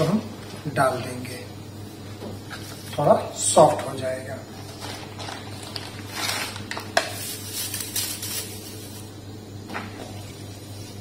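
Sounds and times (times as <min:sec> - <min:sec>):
steady low hum: 0:00.0 - 0:11.0
rustling plastic packets: 0:04.6 - 0:08.8.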